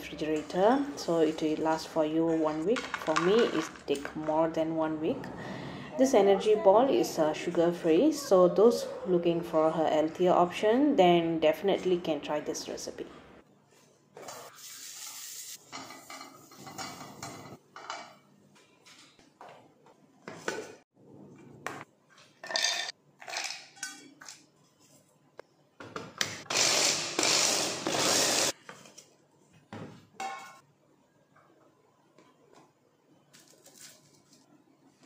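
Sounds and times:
steel cookware clattering: 15.7s - 18.2s, 22.4s - 24.1s
electric chopper grinding nuts: 26.4s - 28.5s.

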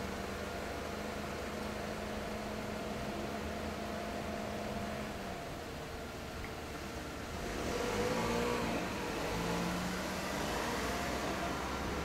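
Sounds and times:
street traffic: 0.0s - 12.0s
car passing by: 7.4s - 12.0s.

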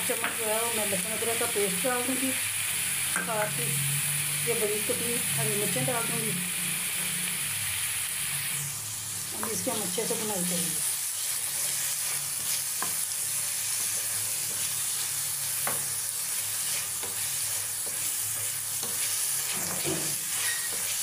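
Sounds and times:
food sizzling in hot oil: 0.0s - 21.0s
spatula scraping and knocking pan: 16.6s - 21.0s.

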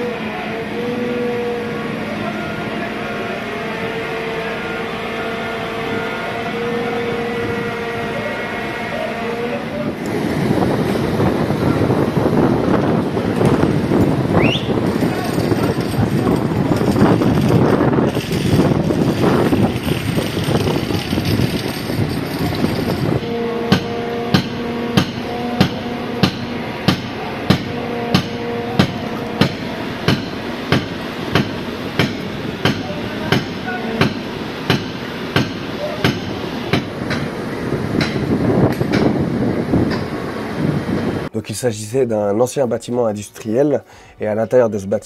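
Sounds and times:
hammer striking metal pry bar: 23.7s - 37.3s.

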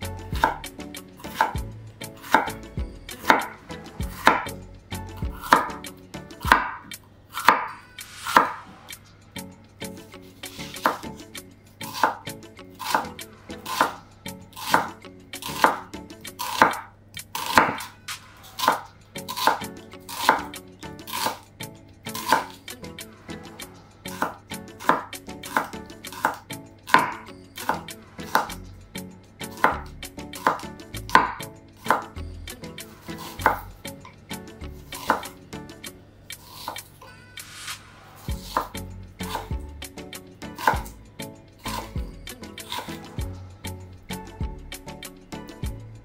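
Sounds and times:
knife chopping on wooden board: 0.4s - 0.6s, 1.3s - 1.6s, 2.2s - 2.6s, 3.2s - 4.5s, 5.2s - 5.8s, 6.4s - 7.7s, 8.3s - 8.6s, 10.6s - 11.2s, 11.9s - 12.2s, 12.8s - 14.0s, 14.6s - 17.9s, 18.6s - 21.4s, 22.2s - 22.6s, 24.2s - 28.6s, 29.5s - 32.1s, 33.1s - 33.6s, 35.0s - 35.4s, 38.3s - 39.6s, 40.5s - 40.9s.

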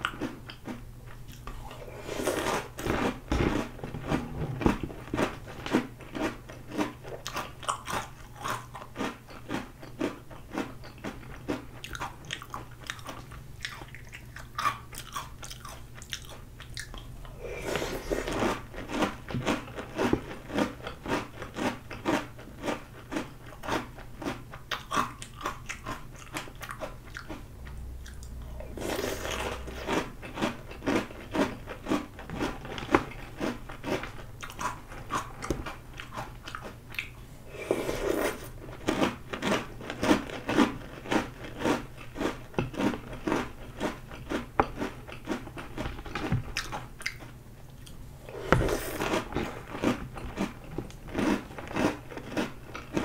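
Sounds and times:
person crunching dry cereal: 1.3s - 27.4s, 28.6s - 35.3s, 37.5s - 47.2s, 48.2s - 53.0s.

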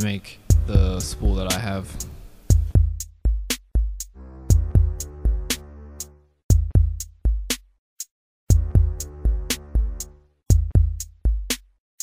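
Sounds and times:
electronic music with drum machine: 0.4s - 12.0s
held synth chord: 4.2s - 6.3s.

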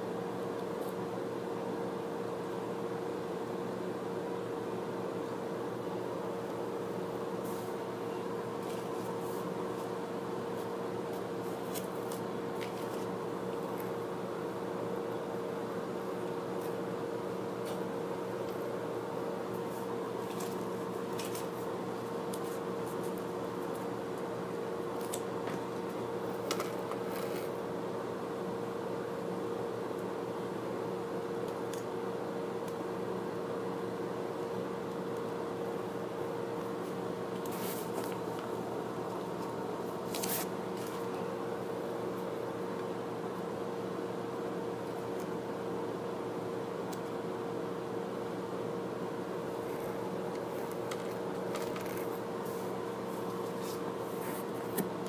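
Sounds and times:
background hum with faint whine: 0.0s - 55.0s
paper sticker sheet rustling: 39.4s - 41.0s.

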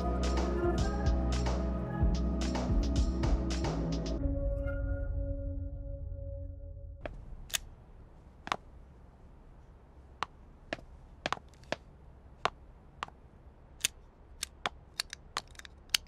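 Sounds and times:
sharp clicks and taps: 10.2s - 13.2s, 13.8s - 16.0s.

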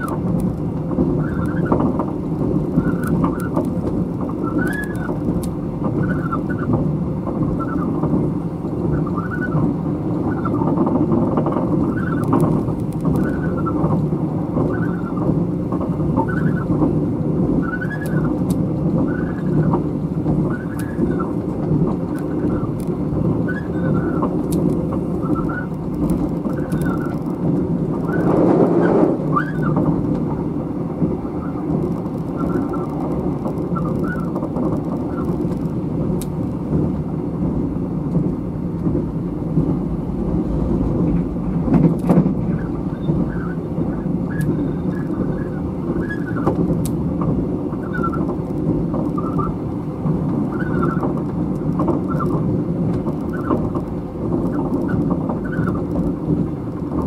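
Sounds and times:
train wheels rumbling on rails: 0.0s - 57.0s
short squeaks: 14.6s - 15.2s, 26.4s - 27.4s.

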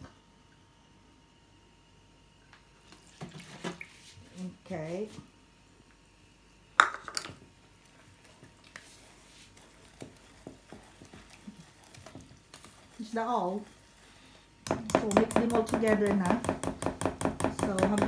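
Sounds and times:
whisk stirring batter in bowl: 8.3s - 18.0s.

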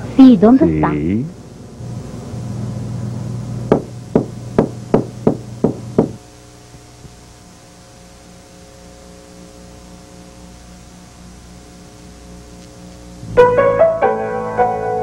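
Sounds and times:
sharp knocks: 3.7s - 6.2s.

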